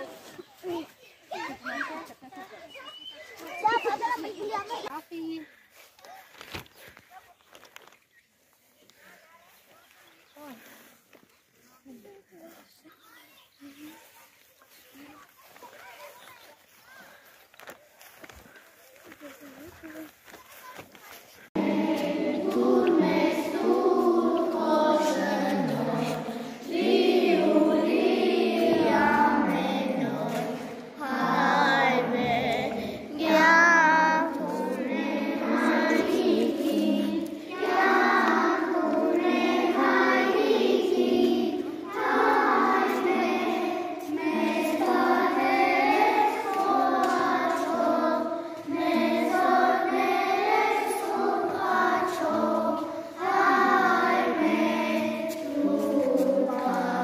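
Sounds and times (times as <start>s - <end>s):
children singing: 21.5s - 57.0s.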